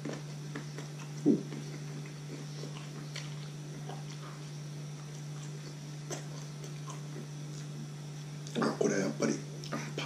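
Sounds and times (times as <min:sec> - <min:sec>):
quiet chewing with clicks: 0:00.0 - 0:08.6
low electrical hum: 0:00.0 - 0:10.0
loud mouth sound: 0:01.2 - 0:01.8.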